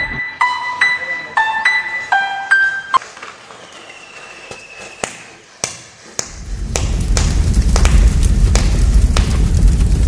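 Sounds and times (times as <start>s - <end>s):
plucked-note background music: 0.0s - 3.0s
thin steady whistling tone: 3.4s - 5.5s
sharp pops: 4.5s - 10.0s.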